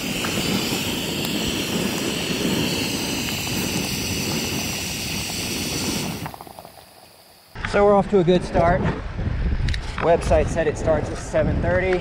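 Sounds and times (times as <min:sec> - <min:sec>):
water boiling: 0:00.0 - 0:07.5
gas burner roaring: 0:00.0 - 0:07.6.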